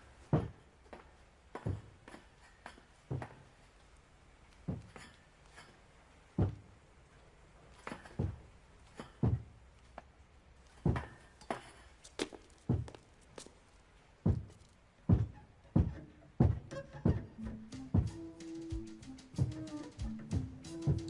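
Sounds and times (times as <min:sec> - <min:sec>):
heavy footsteps on hard floor: 0:00.2 - 0:00.6, 0:04.7 - 0:05.0, 0:06.4 - 0:06.7, 0:09.2 - 0:09.5, 0:10.8 - 0:11.2, 0:12.6 - 0:13.1, 0:14.2 - 0:18.2.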